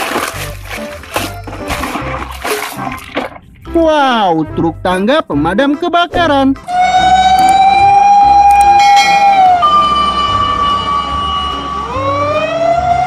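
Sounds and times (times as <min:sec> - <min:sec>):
low rumble: 0:03.0 - 0:12.6
fire engine siren wailing: 0:06.6 - 0:13.0.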